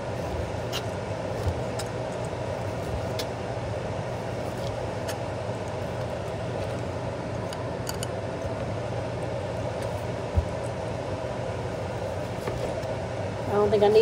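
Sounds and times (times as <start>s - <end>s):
fan-like hum: 0.0s - 14.0s.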